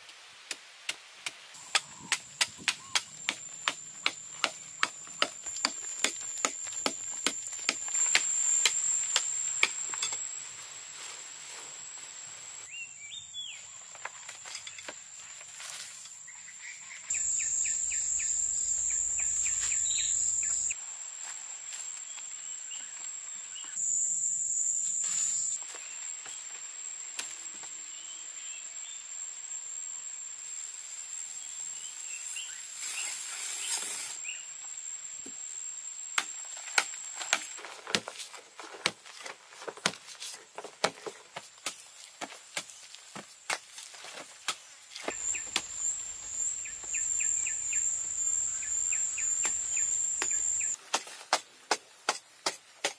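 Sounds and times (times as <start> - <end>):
bird chirps: 1.6 - 3.2, 16.3 - 20.8, 45.1 - 50.8
high insect drone: 1.6 - 52.9.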